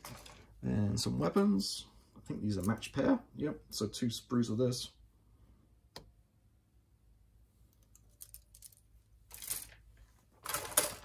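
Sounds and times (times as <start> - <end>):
plastic rustle and clatter: 9.3 - 11.0.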